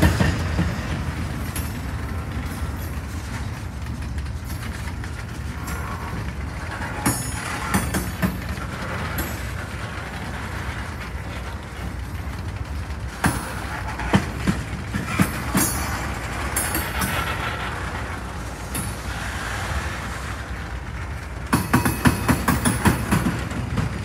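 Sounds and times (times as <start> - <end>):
train wheels rumbling on rail: 0.0 - 24.0
wheels clacking over rail joints: 0.0 - 24.0.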